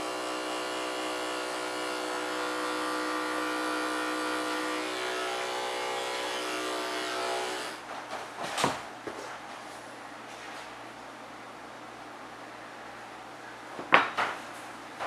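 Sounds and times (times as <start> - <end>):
electric clippers buzzing: 0.0 - 7.8.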